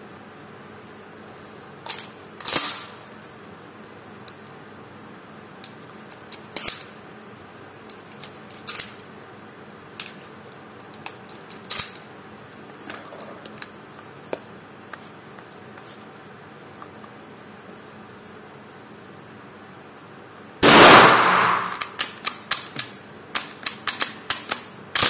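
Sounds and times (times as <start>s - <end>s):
shotgun loading clicks and clacks: 1.9s - 2.9s, 5.7s - 7.0s, 7.9s - 9.1s, 10.0s - 12.1s, 20.7s - 25.0s.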